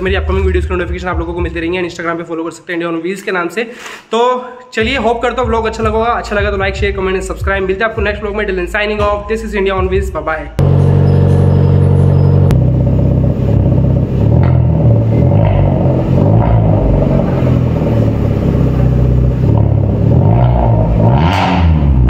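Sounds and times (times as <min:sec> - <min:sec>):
car engine revving loud exhaust: 0:10.6 - 0:22.0.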